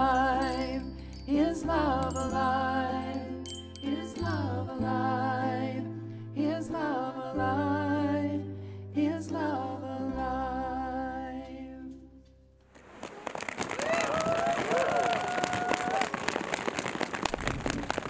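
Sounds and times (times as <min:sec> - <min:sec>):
cello and bass band with voice: 0:00.0 - 0:12.2
crowd rustle: 0:12.7 - 0:18.0.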